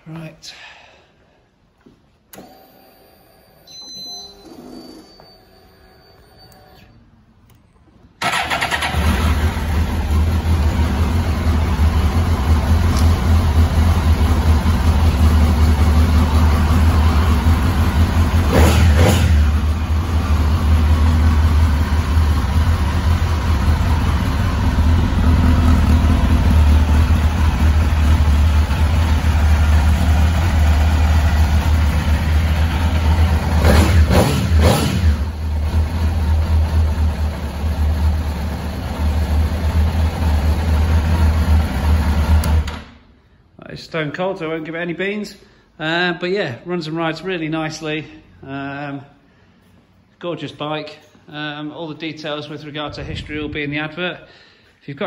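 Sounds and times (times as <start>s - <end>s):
motorcycle engine starting and idling: 8.2s - 43.2s.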